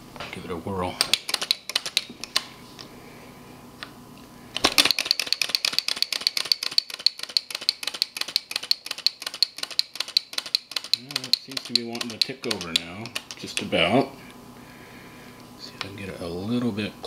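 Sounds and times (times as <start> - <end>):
small engine clattering: 4.8 - 13.3.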